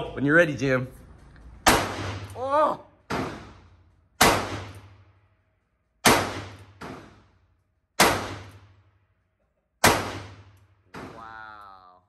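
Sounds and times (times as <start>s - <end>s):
revolver gunshots: 1.6s - 2.4s, 3.1s - 5.1s, 6.0s - 7.3s, 8.0s - 8.8s, 9.8s - 11.1s.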